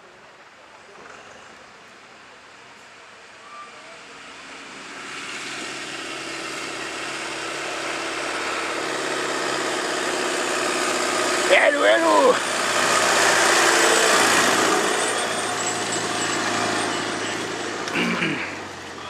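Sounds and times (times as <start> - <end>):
tractor engine running: 4.3 - 19.0.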